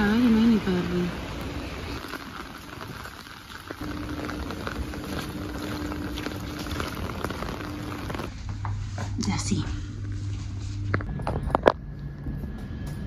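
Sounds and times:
heavy rain on pavement: 0.0s - 8.3s
steady low hum: 0.0s - 13.0s.

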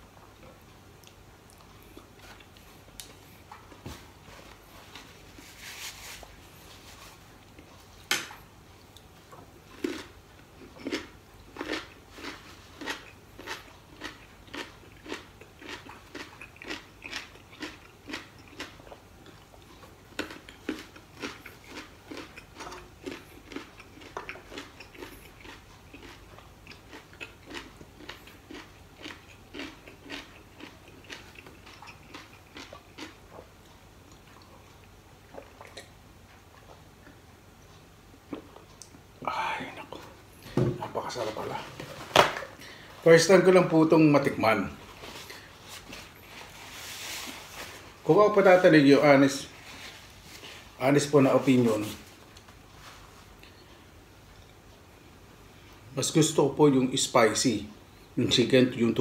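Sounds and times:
person chewing crispy food: 0.4s - 5.5s, 8.8s - 40.4s, 44.8s - 48.0s.

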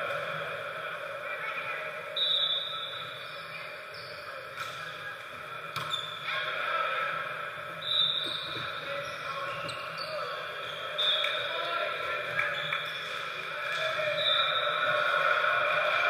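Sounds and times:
players' voices: 0.0s - 16.0s
sneakers squeaking on floor: 2.3s - 4.4s, 5.8s - 6.3s, 7.8s - 11.5s.

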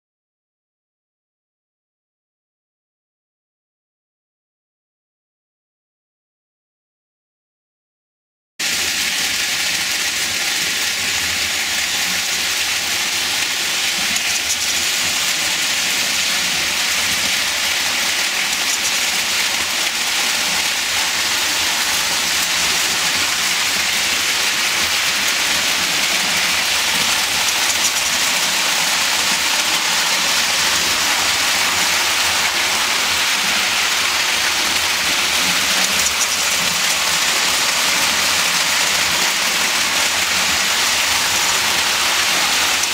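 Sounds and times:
toy train running on track: 8.6s - 42.9s.

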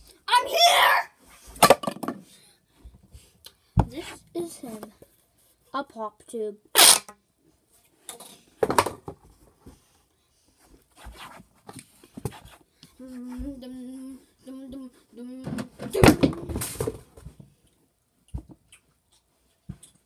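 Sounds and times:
child humming: 13.0s - 15.6s.

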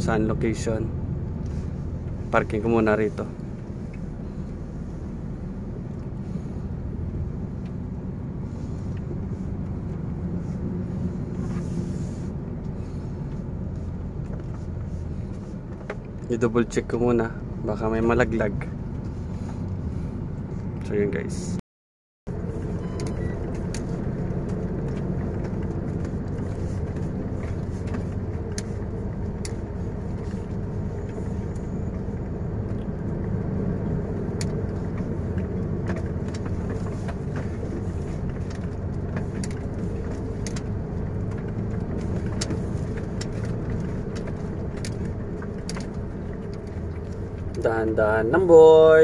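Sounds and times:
truck engine and road drone: 0.0s - 21.6s, 22.3s - 49.0s.

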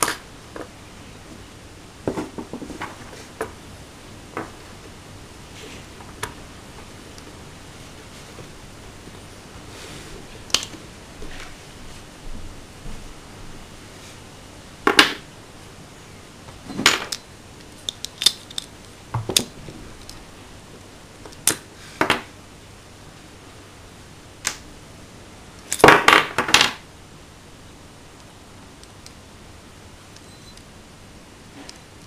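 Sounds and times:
metal parts clicking and clinking: 17.9s - 18.8s.

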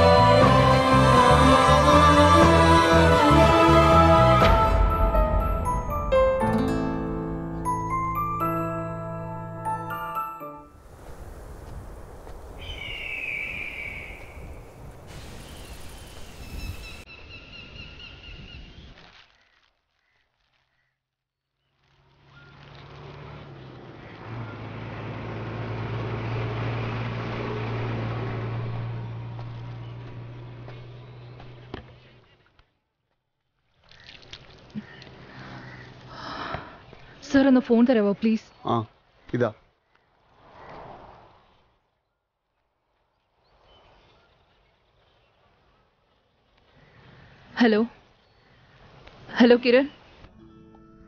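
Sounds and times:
vehicle engine hum: 0.0s - 10.2s, 21.6s - 32.7s
piano-like music notes: 0.0s - 10.8s
bird calls: 12.5s - 14.7s, 33.8s - 37.3s
bird chirps: 12.5s - 14.7s, 15.6s - 21.0s.

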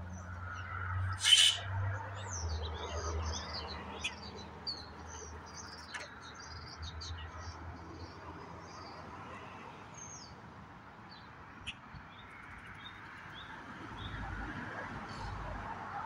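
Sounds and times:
songbirds chirping: 0.0s - 15.8s
harsh bird rasp: 1.0s - 1.9s.

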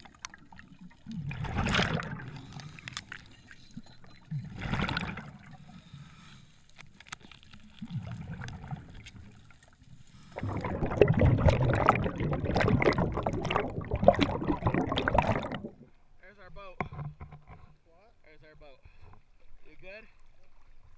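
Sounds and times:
bubbling churning water: 0.0s - 2.7s, 4.3s - 5.7s, 7.8s - 15.9s
low water movement: 0.0s - 20.9s
camera clicks underwater: 6.7s - 9.2s.

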